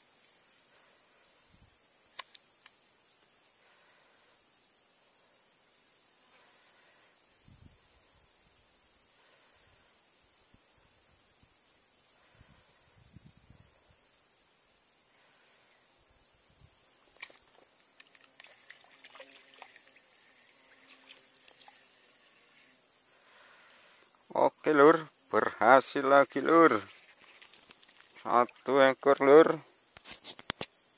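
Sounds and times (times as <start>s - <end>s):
insects droning: 0.0s - 30.9s
faint clicks and rustles: 26.8s - 28.7s, 29.9s - 30.8s.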